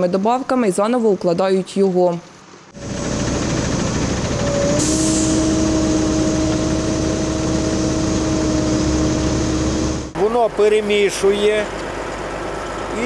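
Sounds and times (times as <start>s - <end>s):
steady mechanical whine: 2.7s - 11.1s
heavy diesel engine running: 2.7s - 13.0s.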